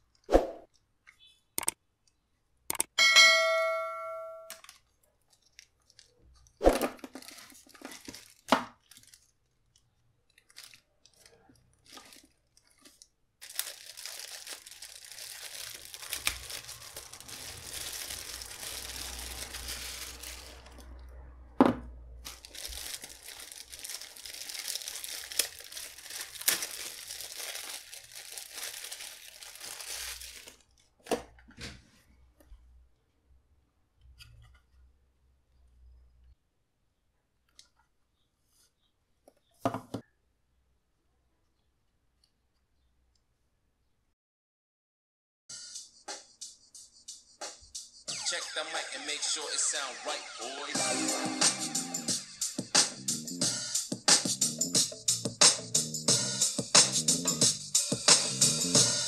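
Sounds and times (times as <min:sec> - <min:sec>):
sharp click: 0:01.6 - 0:01.8, 0:02.7 - 0:02.9
plastic bag crinkling and tearing: 0:04.5 - 0:21.0, 0:22.2 - 0:31.0.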